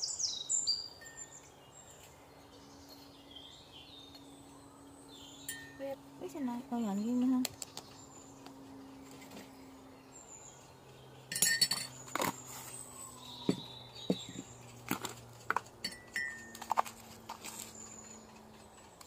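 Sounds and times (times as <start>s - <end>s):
spoon clinking against a mug: 11.3s - 12.0s
plastic jars and lids knocking: 13.4s - 15.7s.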